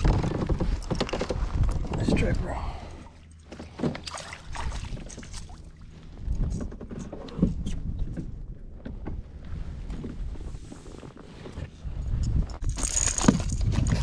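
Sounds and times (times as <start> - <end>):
knocks and clatter on kayak: 0.0 - 2.3, 3.4 - 4.1, 6.2 - 10.2, 12.6 - 14.0
water splashes: 3.1 - 5.9
wind on microphone: 11.8 - 14.0.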